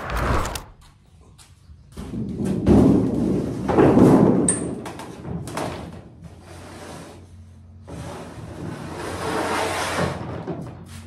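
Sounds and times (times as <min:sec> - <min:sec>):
scraping noise: 0:00.0 - 0:00.9.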